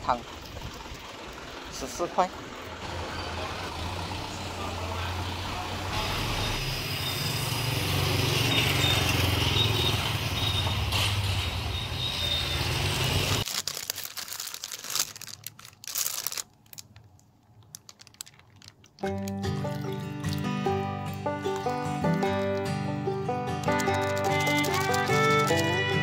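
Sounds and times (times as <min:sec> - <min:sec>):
passing motorcycles and cars: 0:00.0 - 0:13.4
plastic bag crinkling: 0:13.3 - 0:20.5, 0:23.7 - 0:25.8.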